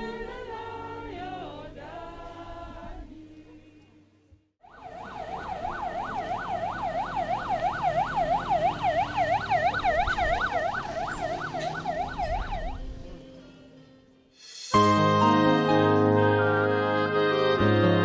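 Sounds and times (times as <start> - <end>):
siren yelping: 4.6 - 12.9.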